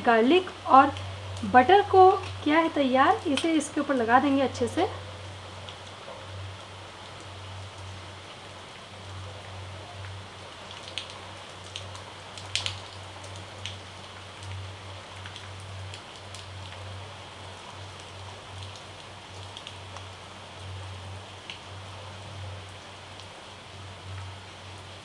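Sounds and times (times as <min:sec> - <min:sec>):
crackly hiss: 0:00.0 - 0:25.0.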